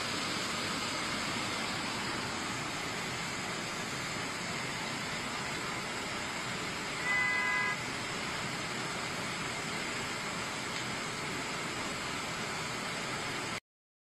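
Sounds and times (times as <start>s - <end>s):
floodwater rushing: 0.0s - 13.6s
vehicle horn: 7.0s - 7.8s.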